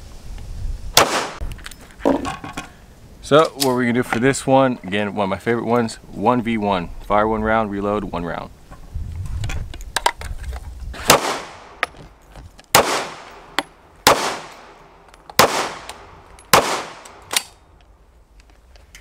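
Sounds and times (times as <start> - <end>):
lighter sharp cracks: 1.0 - 1.4, 11.1 - 12.0, 12.7 - 18.5
loud gunshots with echo: 1.0 - 1.4, 11.0 - 11.8, 12.8 - 14.8, 15.4 - 15.9, 16.5 - 17.2.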